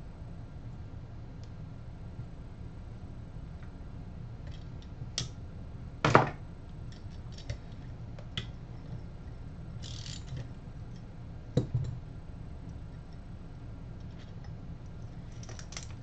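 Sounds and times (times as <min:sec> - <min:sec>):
low steady hum: 0:00.0 - 0:16.0
parts knocking and clicking: 0:11.6 - 0:12.0.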